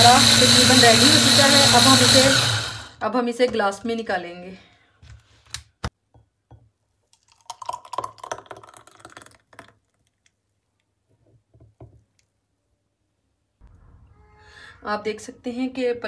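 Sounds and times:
juice pouring into a glass: 0:07.1 - 0:10.3.

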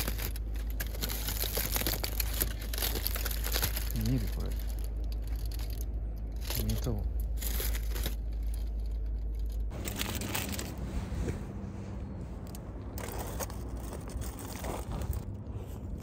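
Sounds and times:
foil wrapper crinkling: 0:00.0 - 0:10.8
low rumble: 0:00.0 - 0:16.0.

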